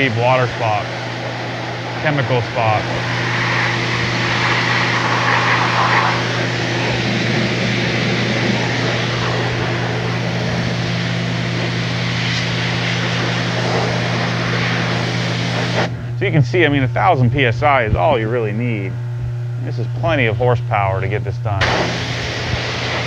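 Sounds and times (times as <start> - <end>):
water jet hissing: 0.0 - 16.0, 21.6 - 23.0
pressure washer motor and pump drone: 0.0 - 23.0.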